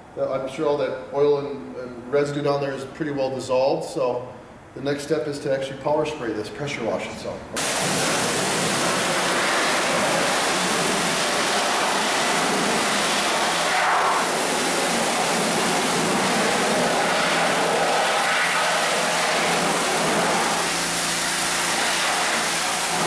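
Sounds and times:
pressure washer spraying water: 7.6s - 23.0s.

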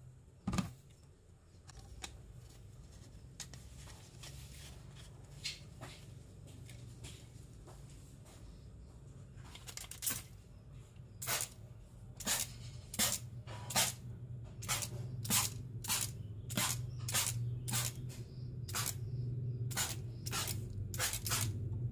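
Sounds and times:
water pistol spurts hitting wall: 11.2s - 11.6s.

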